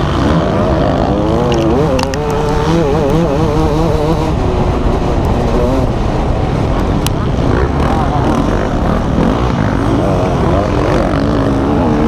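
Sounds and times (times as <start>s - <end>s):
motocross bike engine revving: 0.0s - 12.0s
wind noise: 0.0s - 12.0s
sharp ticks: 1.4s - 3.3s.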